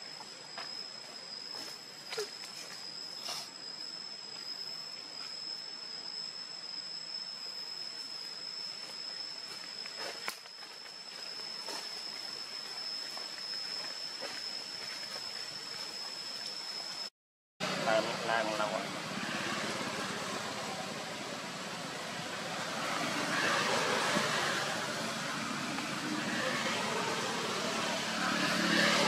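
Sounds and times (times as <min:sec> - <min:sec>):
constant high-pitched whine: 0:00.0 - 0:29.0
even hiss: 0:01.2 - 0:13.5.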